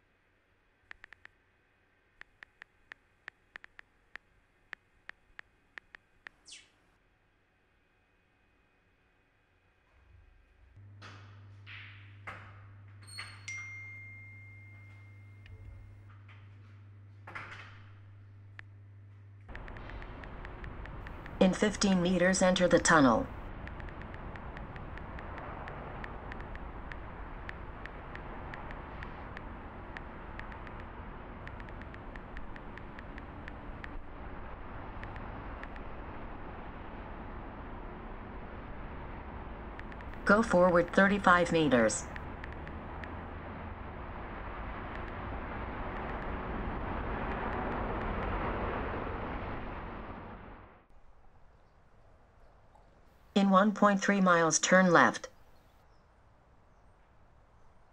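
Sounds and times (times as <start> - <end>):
outdoor background noise: 0.0 - 57.9
quick light ticks: 0.9 - 1.4, 2.2 - 6.6, 19.5 - 21.5, 23.3 - 34.1, 39.7 - 40.2
rushing tunnel ambience: 9.9 - 57.9.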